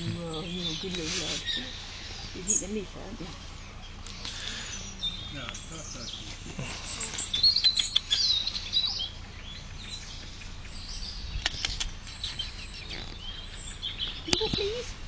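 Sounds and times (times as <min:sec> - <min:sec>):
sharp clicks: 0:07.6 - 0:08.3, 0:11.4 - 0:12.0
guinea pigs squeaking: 0:10.7 - 0:14.9.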